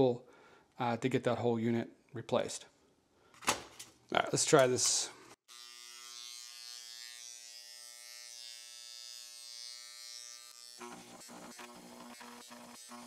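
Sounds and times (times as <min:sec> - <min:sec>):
electric engraver buzzing: 0:05.5 - 0:13.0.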